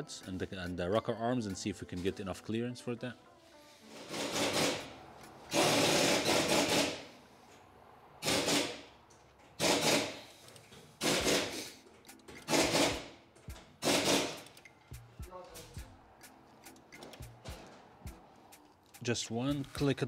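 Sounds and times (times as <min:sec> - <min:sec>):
ratchet wrench clicking: 0:04.1 - 0:07.1, 0:08.2 - 0:08.9, 0:09.6 - 0:20.0.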